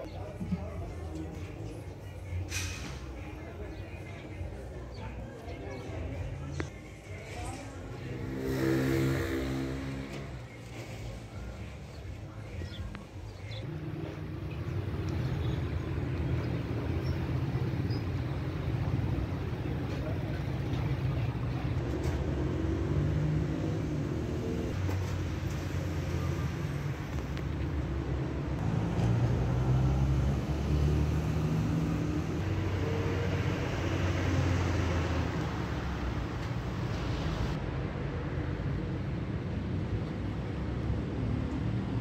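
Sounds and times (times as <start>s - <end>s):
voices in background: 0.0s - 14.1s, 15.2s - 21.8s
motor traffic rumble: 0.0s - 42.0s.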